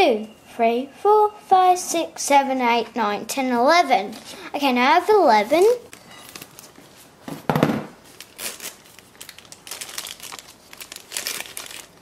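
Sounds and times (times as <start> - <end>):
plastic bag crinkling: 5.6 - 6.9, 8.0 - 12.0.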